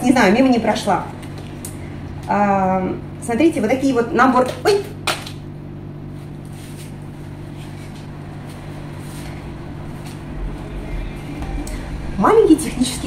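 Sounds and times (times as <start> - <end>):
low hum: 5.4 - 13.0.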